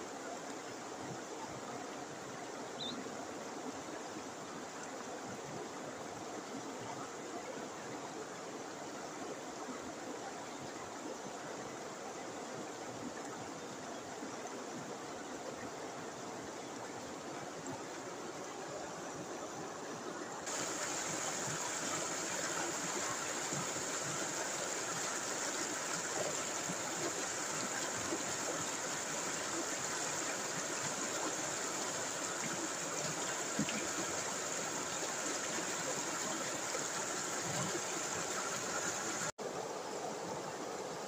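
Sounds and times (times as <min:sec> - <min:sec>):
white water rushing over rocks: 0:03.2 - 0:41.0.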